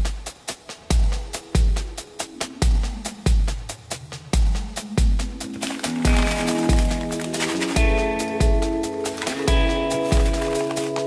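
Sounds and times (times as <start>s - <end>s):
electronic music: 4.4s - 11.0s.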